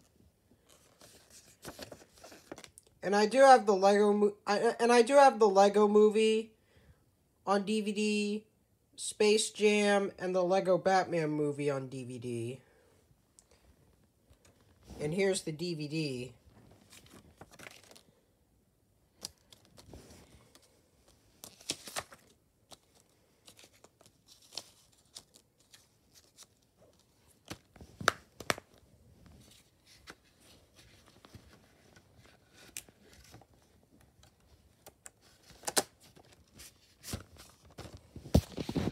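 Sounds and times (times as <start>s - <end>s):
paper rustling: 0.0s - 2.8s, 16.4s - 18.2s, 19.1s - 38.9s.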